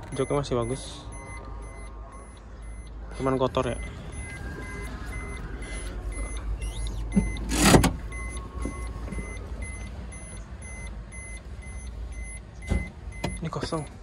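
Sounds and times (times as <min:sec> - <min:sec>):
faint electronic beeps: 0:00.0 - 0:14.0
low rumble: 0:01.0 - 0:07.4.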